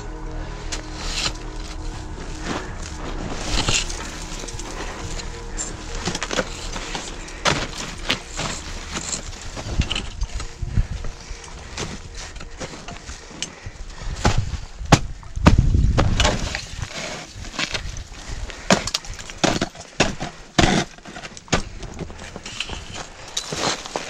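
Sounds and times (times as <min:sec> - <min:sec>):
low rumble: 0:00.0 - 0:16.0
ice axe crunching into ice: 0:18.7 - 0:24.0.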